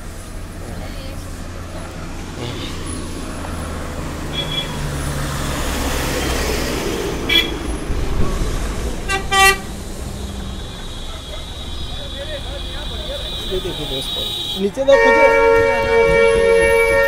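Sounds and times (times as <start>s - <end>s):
heavy vehicle engine running: 0.0s - 14.0s
traffic passing: 0.0s - 17.0s
vehicle horns tooting: 4.3s - 4.9s, 7.2s - 7.7s, 9.0s - 17.0s.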